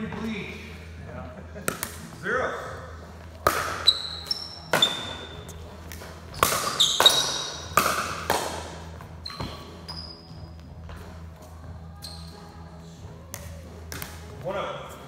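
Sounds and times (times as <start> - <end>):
paddles hitting plastic ball: 1.6 - 2.1, 3.3 - 4.0, 5.8 - 9.1.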